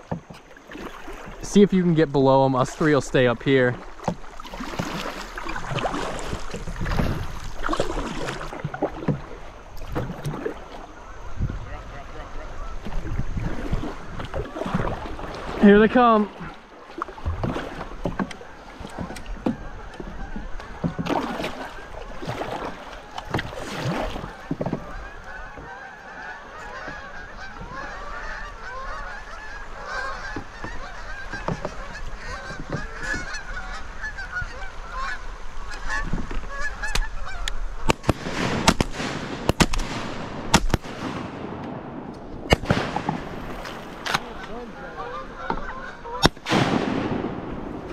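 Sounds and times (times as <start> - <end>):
geese honking: 10.8 - 13.0, 24.1 - 38.0, 42.6 - 47.9
shotgun shots: 37.9 - 43.4, 46.2 - 47.7.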